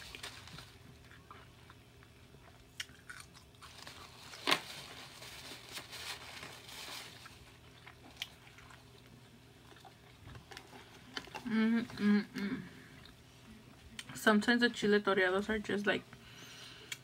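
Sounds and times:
carrot crunching: 0.0s - 12.1s.

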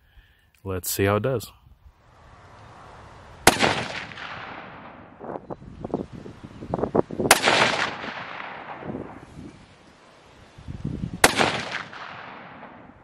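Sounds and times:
rifle shots with echo: 3.4s - 5.2s, 7.2s - 9.2s, 11.2s - 13.0s.

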